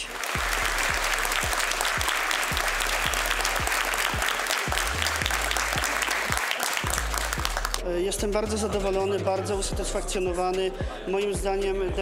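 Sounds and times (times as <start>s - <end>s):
audience applauding: 0.0s - 7.8s
music with low steady beat: 0.4s - 12.0s.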